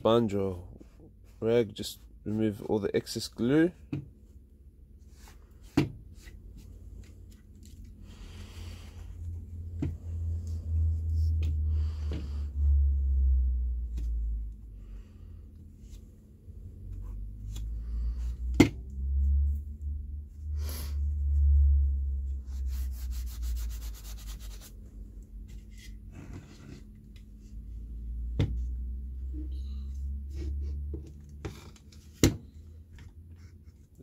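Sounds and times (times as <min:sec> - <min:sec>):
low rumble: 0:06.7 - 0:22.8
sponge rubbing on wood: 0:22.4 - 0:24.8.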